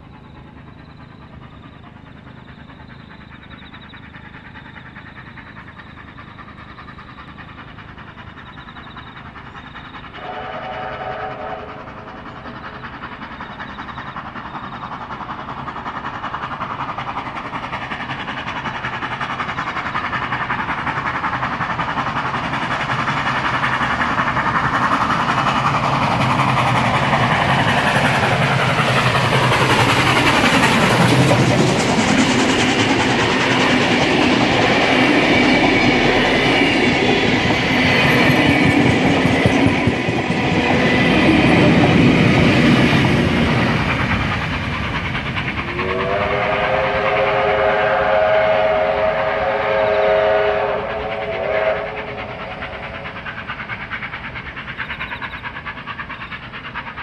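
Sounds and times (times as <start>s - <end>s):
steam locomotive passing: 0.0s - 57.0s
train wheels clicking over rail joints: 0.0s - 57.0s
train chime whistle: 10.2s - 12.0s, 45.7s - 52.3s.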